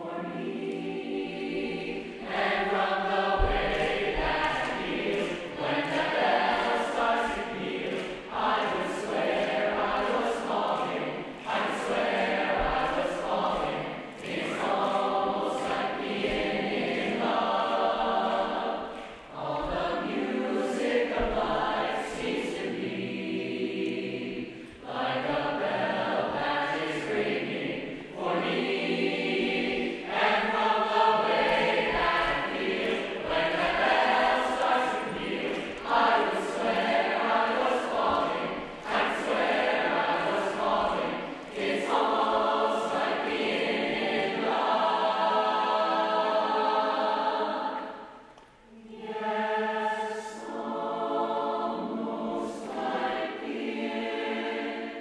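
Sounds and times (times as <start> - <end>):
mixed choir singing jazz: 0.0 - 55.0.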